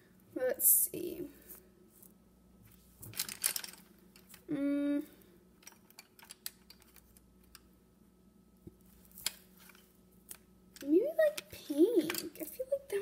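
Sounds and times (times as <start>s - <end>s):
person humming: 4.5s - 5.2s.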